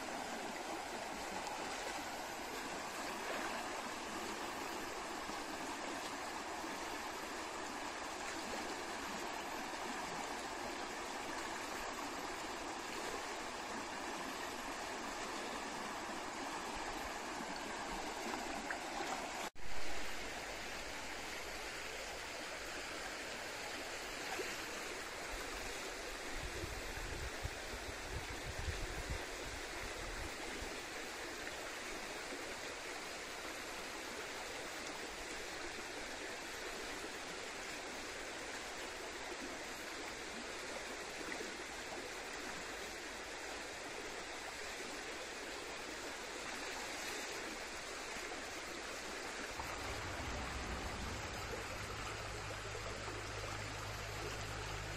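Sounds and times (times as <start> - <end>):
stream rushing over stones: 0.0 - 54.9
low rumbles: 49.4 - 54.9.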